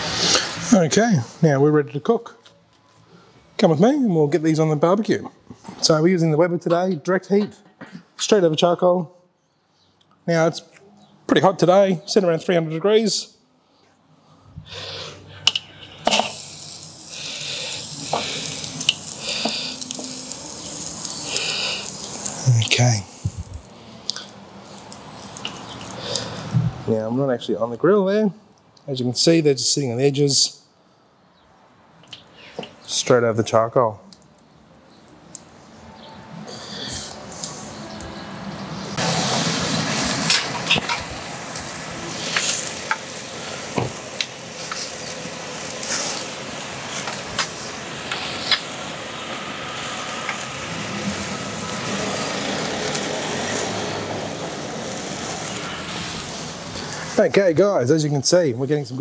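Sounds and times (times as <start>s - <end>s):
meat sizzling on charcoal: 0.0s - 1.1s, 14.7s - 27.6s, 32.0s - 59.0s
sharp crackles and pops: 15.5s - 26.8s, 34.0s - 35.7s, 38.8s - 57.5s.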